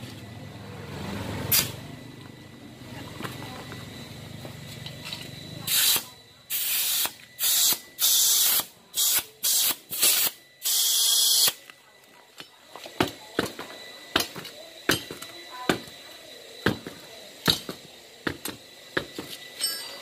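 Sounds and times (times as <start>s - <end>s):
compressed air hissing in bursts: 5.7s - 11.6s.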